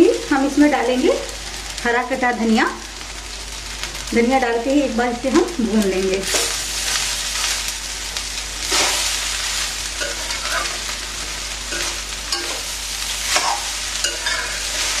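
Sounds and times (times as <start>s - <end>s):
rice sizzling in a pan: 0.0s - 15.0s
metal spatula scraping a pan: 8.6s - 10.9s, 11.7s - 15.0s.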